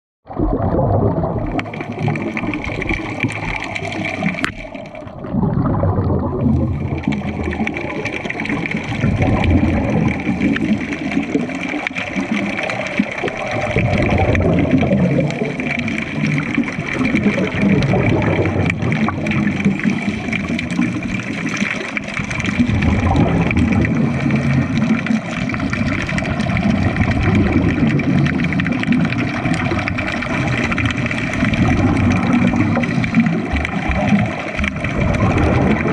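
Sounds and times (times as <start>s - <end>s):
bubbles gurgling underwater: 0.2s - 35.9s.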